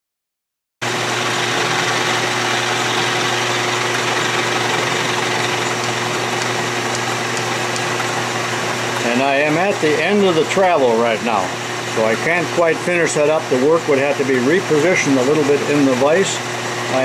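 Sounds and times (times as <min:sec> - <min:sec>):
metal cutting noise: 0:00.8 - 0:10.4
lathe machine hum: 0:00.8 - 0:17.0.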